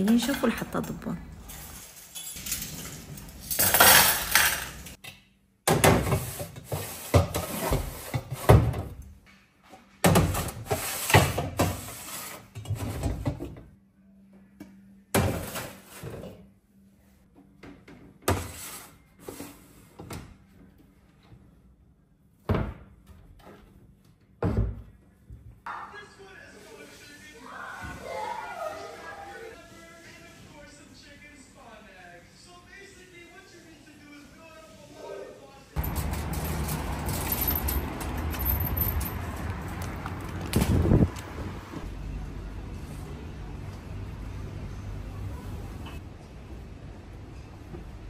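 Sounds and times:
dishes and utensils clattering: 0:00.0 - 0:05.0.

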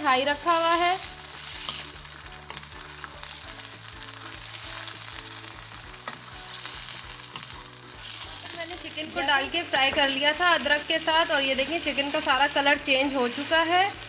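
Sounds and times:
chicken sizzling in hot oil: 0:00.0 - 0:14.0.

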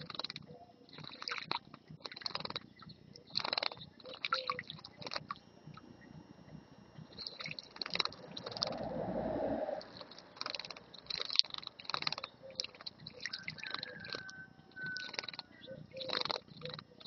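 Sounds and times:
birds splashing wings in water: 0:00.1 - 0:02.6, 0:07.2 - 0:08.8, 0:09.9 - 0:16.8.

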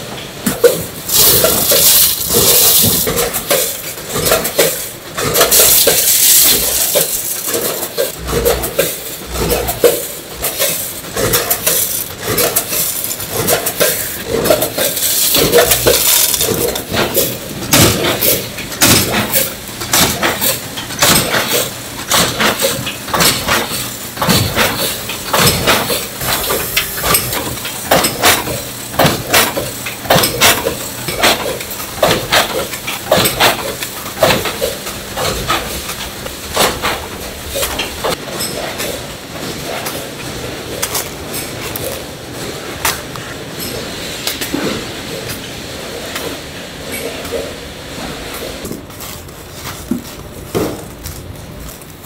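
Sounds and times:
machinery clattering metallically: 0:00.3 - 0:48.7
machinery rushing: 0:00.8 - 0:19.4.

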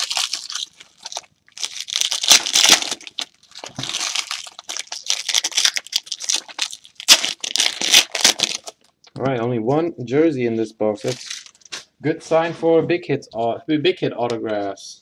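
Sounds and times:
foil wrappers crinkling and tearing: 0:00.0 - 0:08.9, 0:11.0 - 0:11.7.

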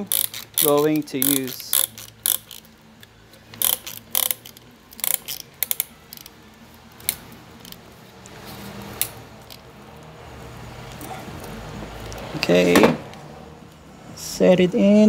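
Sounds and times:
ratchet clicking: 0:00.0 - 0:07.8.

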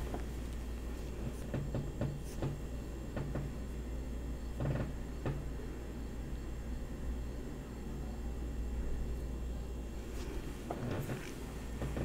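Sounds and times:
hands tapping and rustling: 0:00.0 - 0:03.6, 0:10.1 - 0:12.0
steady low hum: 0:00.0 - 0:12.0.

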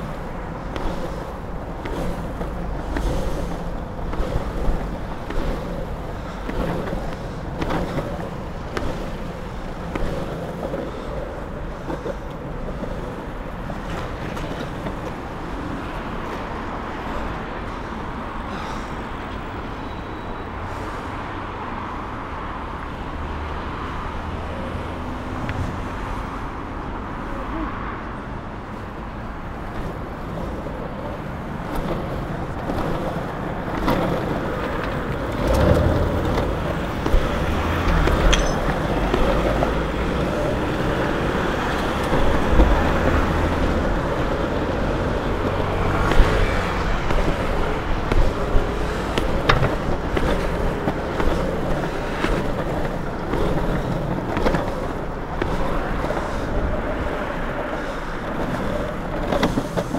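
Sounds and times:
skateboard wheels rolling on asphalt: 0:00.0 - 0:59.9
traffic engine hum: 0:00.0 - 0:59.9
sharp clicks and knocks: 0:33.7 - 0:41.0.

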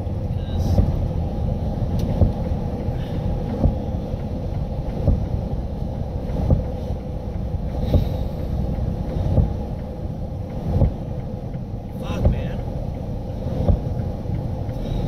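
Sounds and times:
vehicle rumble: 0:00.0 - 0:15.0
soft thumps: 0:13.6 - 0:14.1.

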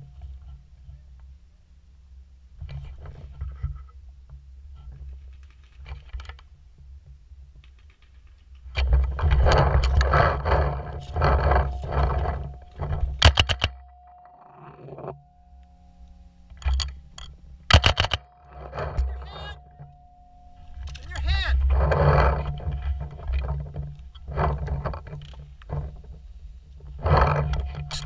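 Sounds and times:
gear rustling and rattling: 0:02.6 - 0:28.0
sharp cracks: 0:16.5 - 0:19.9.

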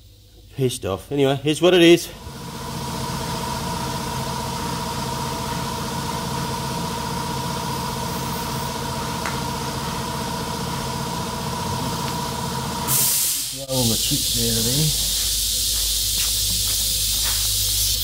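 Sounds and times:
machine motor humming and whining: 0:02.2 - 0:12.9.

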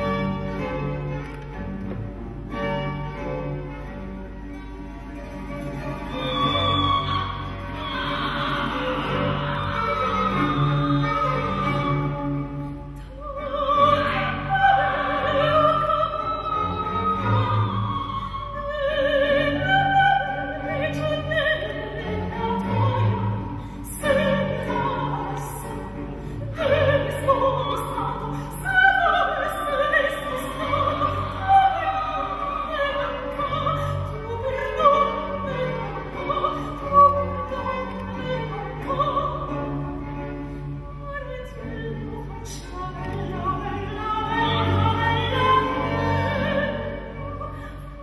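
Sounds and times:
operatic singing: 0:05.9 - 0:40.1.

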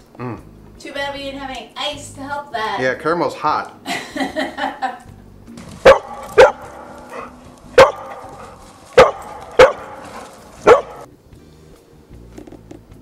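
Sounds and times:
dog barking: 0:05.8 - 0:11.1.

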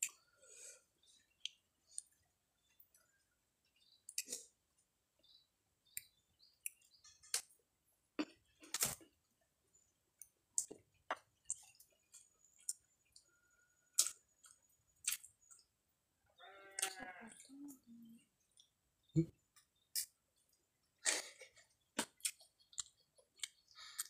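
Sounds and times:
chewing crunches: 0:13.9 - 0:15.7.

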